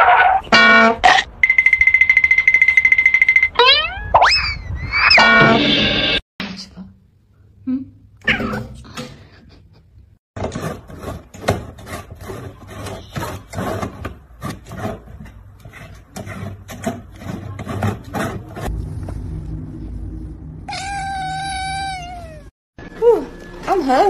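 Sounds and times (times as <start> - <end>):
knocks and scrapes on plastic jar: 10.4 - 18.7
kitten meowing: 20.7 - 22.5.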